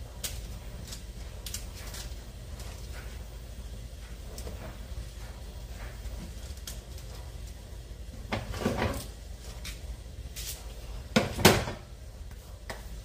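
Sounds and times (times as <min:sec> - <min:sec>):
kitchen items clunking on counter: 0:11.1 - 0:11.9.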